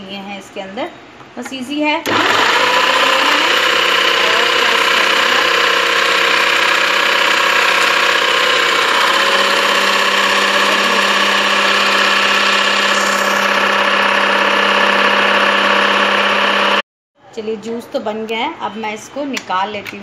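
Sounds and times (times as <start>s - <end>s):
food processor motor running: 2.1s - 16.8s.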